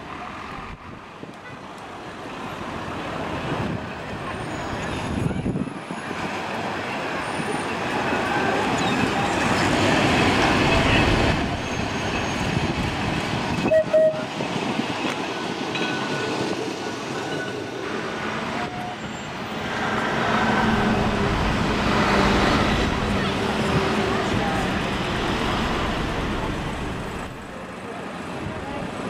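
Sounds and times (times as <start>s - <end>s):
tram rumbling on rails: 0.0s - 29.0s
tram horn toot: 8.2s - 12.8s, 13.5s - 14.4s, 18.4s - 27.5s.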